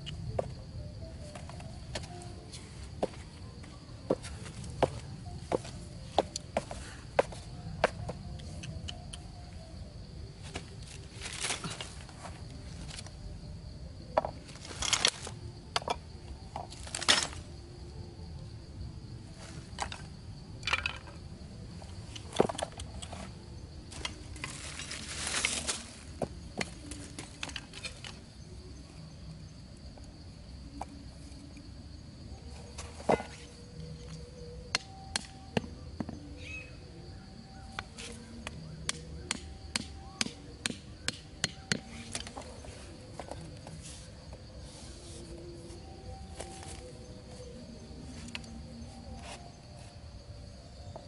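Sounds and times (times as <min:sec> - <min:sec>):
high insect drone: 0:00.0 - 0:51.0
wooden sticks clicking: 0:08.3 - 0:09.3
rustle: 0:23.9 - 0:26.2.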